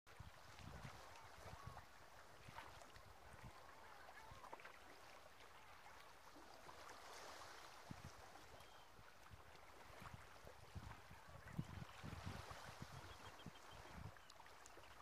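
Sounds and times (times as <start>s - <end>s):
wind rumble on microphone: 0.1s - 4.4s, 7.1s - 14.2s
small waves lapping: 0.1s - 15.0s.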